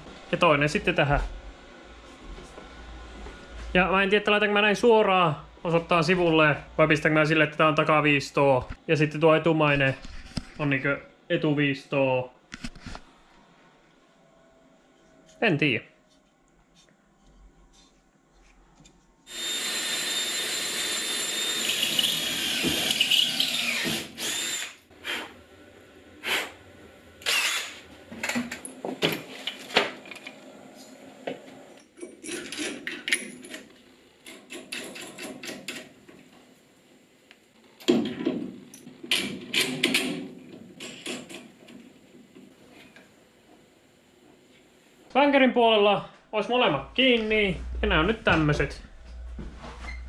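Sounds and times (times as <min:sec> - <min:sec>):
power tool motor running: 0:19.3 - 0:24.8, 0:27.2 - 0:27.8.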